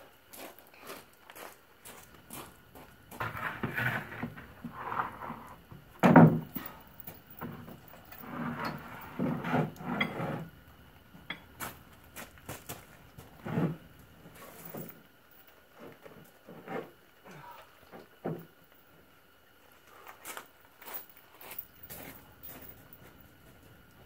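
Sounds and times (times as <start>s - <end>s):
plywood scraping on gravel: 0.4s - 10.6s, 11.6s - 14.8s.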